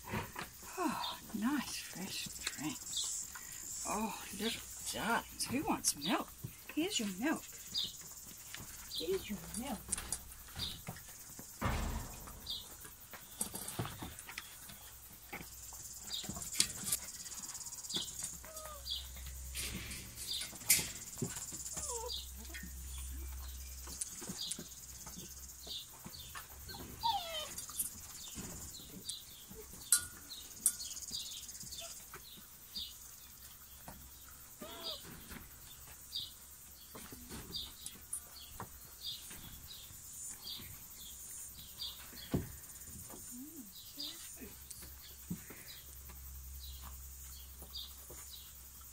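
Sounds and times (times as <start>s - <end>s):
small birds chirping: 0.1s - 48.9s
puppies squeaking: 18.2s - 19.1s, 21.5s - 22.7s, 26.7s - 27.8s, 34.6s - 35.0s
metal bowl clinks: 29.9s - 30.9s.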